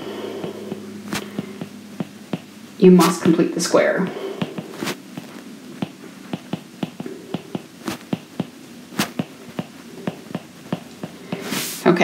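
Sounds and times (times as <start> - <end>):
stylus tapping on tablet screen: 0.4 - 2.5, 4.4 - 11.6.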